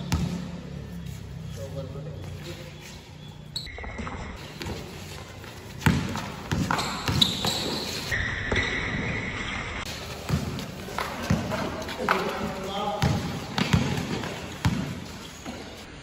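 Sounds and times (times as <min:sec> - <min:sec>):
basketball bouncing on court: 0:00.0 - 0:00.7, 0:03.6 - 0:08.9, 0:09.8 - 0:15.8
high squeal-like tones: 0:06.8 - 0:09.9.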